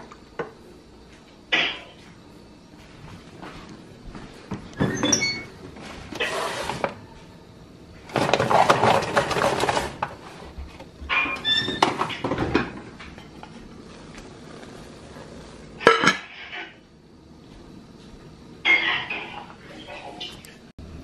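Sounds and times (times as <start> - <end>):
oven door squeaky clunk: 4.8 - 5.6, 11.1 - 12.4
oven rack and foil pan rattling: 8.1 - 10.2.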